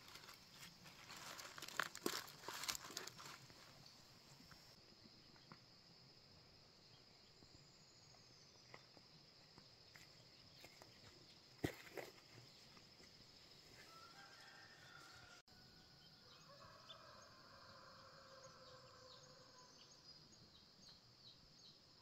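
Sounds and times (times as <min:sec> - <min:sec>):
rustles: 0:00.0 - 0:04.8
insects trilling: 0:00.0 - 0:22.0.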